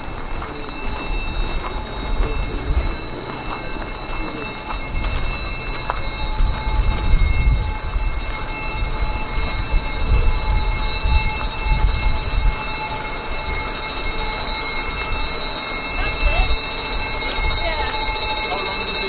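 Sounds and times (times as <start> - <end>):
bus rumbling: 0.0 - 14.2
high-pitched whine: 0.0 - 19.0.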